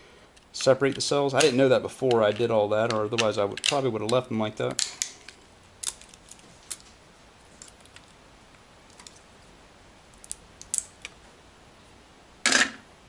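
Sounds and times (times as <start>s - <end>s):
pliers clicking and snapping plastic: 0.6s - 5.2s.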